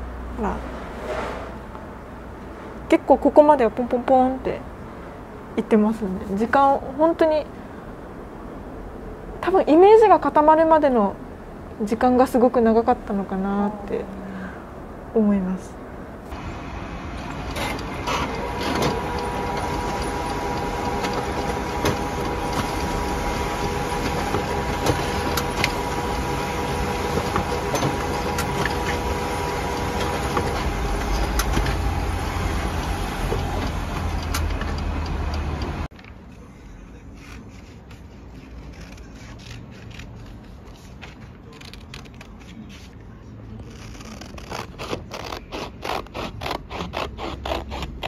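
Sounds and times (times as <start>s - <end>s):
printer whirring: 16.3s - 35.9s
scissors cutting paper: 36.9s - 43.0s, 43.6s - 48.0s.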